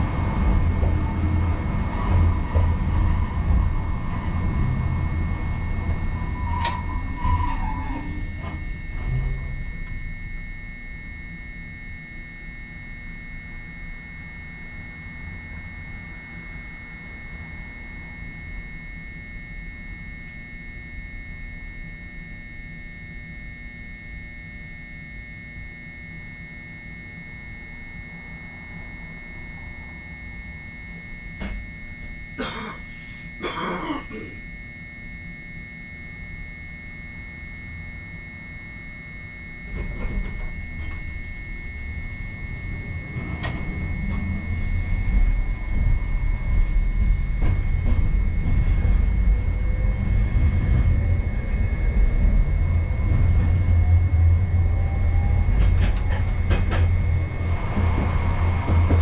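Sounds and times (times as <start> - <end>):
streetcar rumbling along track: 0.0 - 9.9, 42.5 - 59.0.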